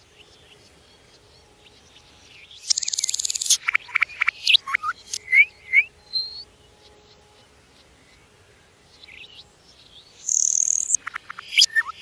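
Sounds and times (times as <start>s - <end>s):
songbird buzzy trill: 0.0s - 12.0s
songbird whistle: 2.4s - 8.3s, 10.2s - 12.0s
sharp clicking bird notes: 10.3s - 12.0s.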